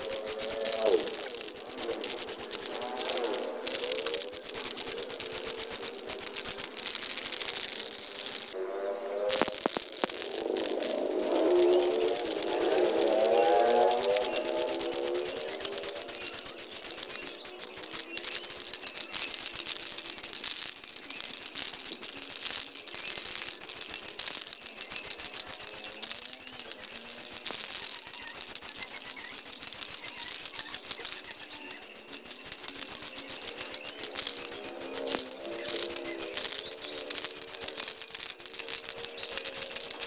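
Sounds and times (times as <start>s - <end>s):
spray can ball rattling: 0.0s - 8.6s, 9.2s - 40.0s.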